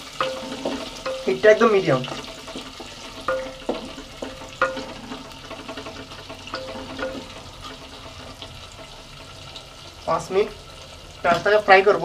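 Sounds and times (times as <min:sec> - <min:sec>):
onion sizzling in hot oil: 0:00.0 - 0:12.0
utensil knocking against pot: 0:00.2 - 0:07.5.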